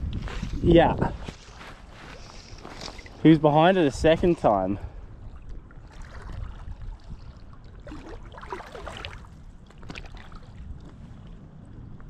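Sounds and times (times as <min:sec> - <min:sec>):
low wind rumble: 0:00.0 - 0:12.0
waves lapping and splashing: 0:02.0 - 0:11.5.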